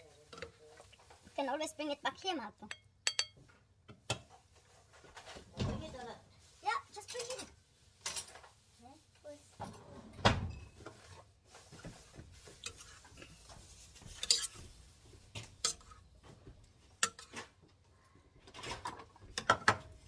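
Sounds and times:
utensil clinking against pot and plate: 2.6 - 3.5, 12.4 - 16.1, 16.9 - 17.6.

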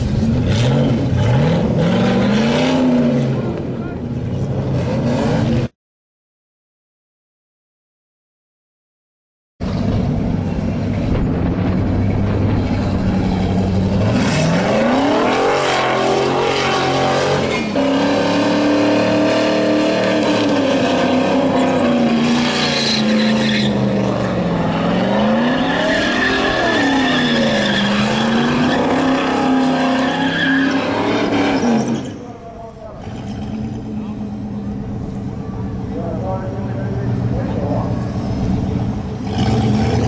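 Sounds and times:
car engine revving hard: 0.0 - 3.6, 12.6 - 32.1, 39.1 - 40.0
tyres screeching: 14.0 - 34.1.

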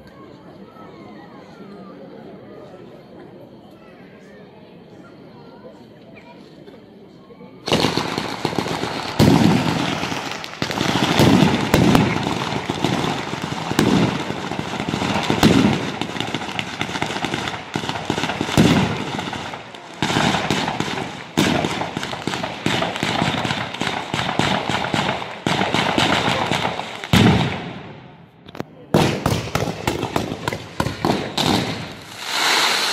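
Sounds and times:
firecrackers crackling and banging: 7.6 - 32.9.

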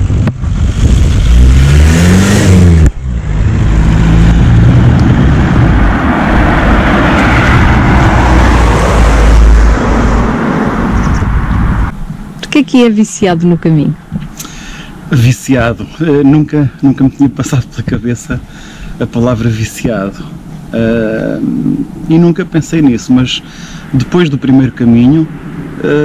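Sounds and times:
microphone handling noise: 0.0 - 1.4, 3.7 - 6.0, 10.9 - 12.2.

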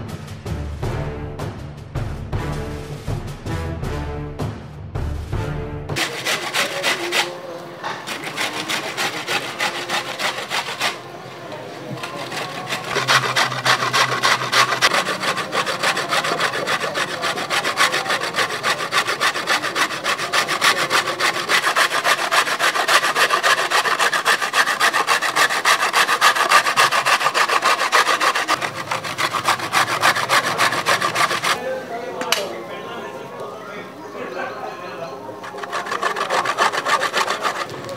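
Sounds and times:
peeler scraping cucumber: 6.0 - 31.6, 35.4 - 37.9.

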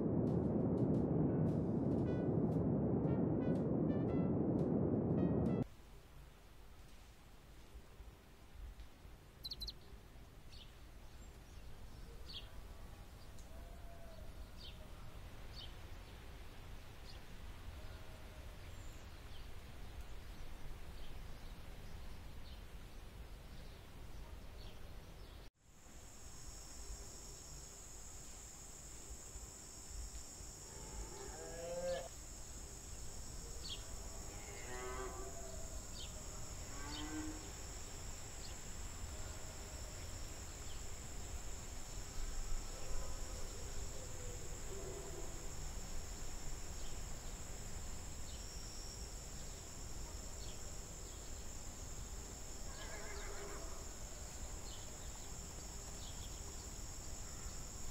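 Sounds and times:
high drone of insects: 9.4 - 9.8, 25.6 - 57.9.

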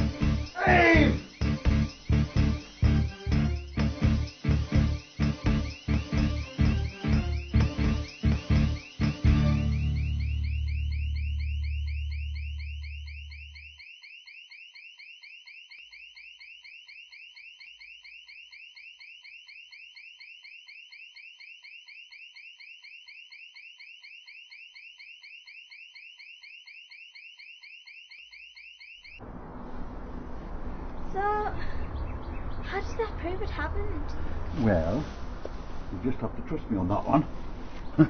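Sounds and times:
low music: 0.0 - 12.4
electronic alarm chirping: 0.0 - 29.2.

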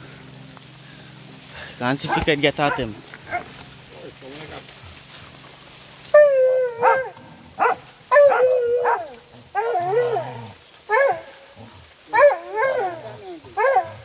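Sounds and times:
hunting dogs baying: 2.0 - 3.6, 6.1 - 14.0.

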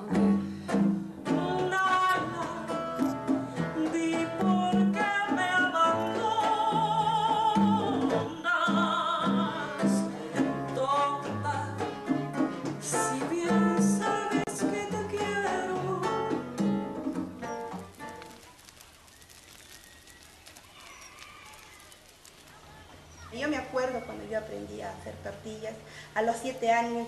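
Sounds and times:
band accompaniment with bass line: 0.0 - 18.2
woman singing into a microphone: 1.2 - 3.0, 3.7 - 12.0, 12.8 - 16.5.

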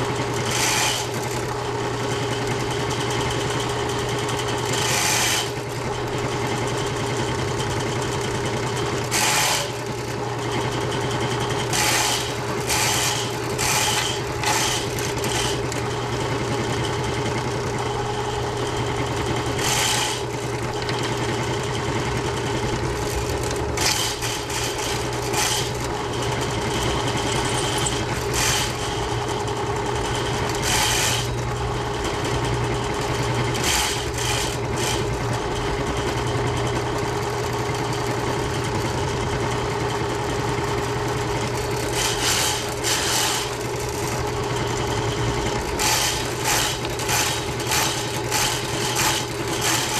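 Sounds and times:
drain-cleaning machine running: 0.0 - 49.9
harsh bursts of noise: 45.8 - 49.9.

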